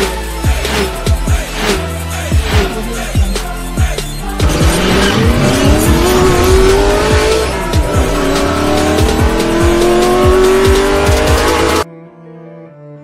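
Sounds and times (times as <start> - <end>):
intro music with drum beat: 0.0 - 11.8
race car engine revving: 0.6 - 3.2, 4.2 - 11.8.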